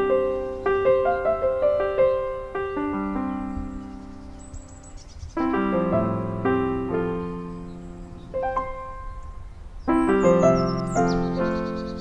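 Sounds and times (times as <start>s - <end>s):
soft piano music: 0.0s - 12.0s.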